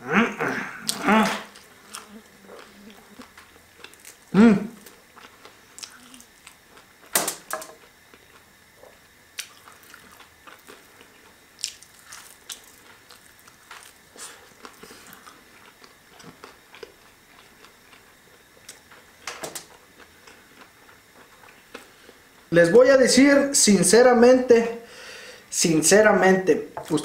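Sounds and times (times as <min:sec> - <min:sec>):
person chewing: 0:00.7 - 0:07.1, 0:07.7 - 0:22.5.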